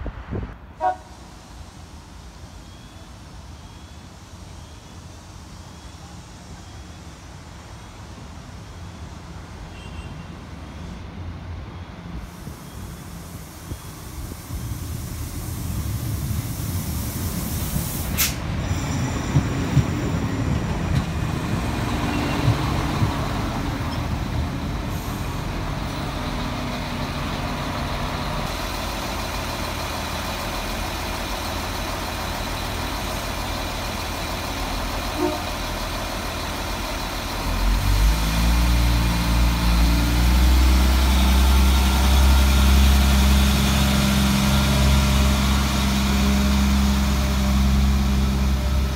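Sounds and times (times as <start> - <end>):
diesel engines running: 10.8 - 48.9
short sharp air hiss: 12.2 - 18.5
train wheels rumbling over rail joints: 13.9 - 48.9.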